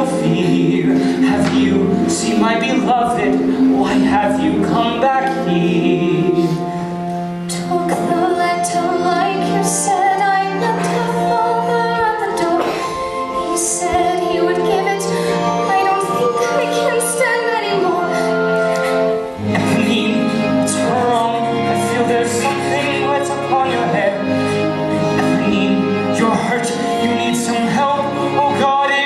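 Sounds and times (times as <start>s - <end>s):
instrumental accompaniment: 0.0s - 29.0s
woman singing: 7.5s - 20.0s.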